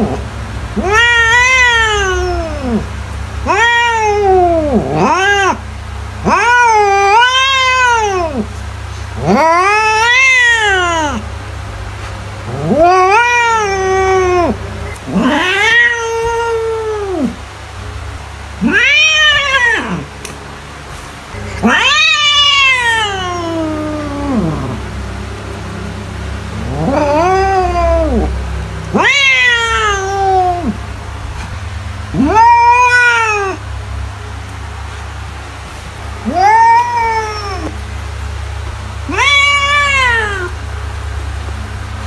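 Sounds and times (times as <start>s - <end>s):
steady low hum: 0.0s - 42.0s
cat meowing: 0.8s - 5.6s, 6.2s - 8.5s, 9.2s - 11.2s, 12.5s - 17.4s, 18.6s - 20.1s, 21.4s - 25.8s, 26.6s - 30.8s, 32.2s - 33.6s, 36.2s - 37.8s, 39.0s - 40.6s.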